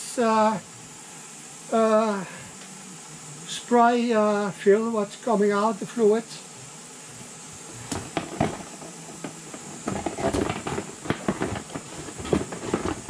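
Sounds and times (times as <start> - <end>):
rummaging in a cardboard box: 8.0 - 13.0.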